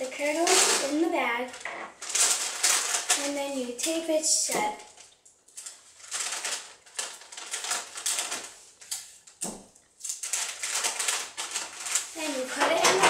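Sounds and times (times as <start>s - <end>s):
paper bag crinkling: 0.0s - 13.0s
tape pulled and torn: 4.5s - 12.2s.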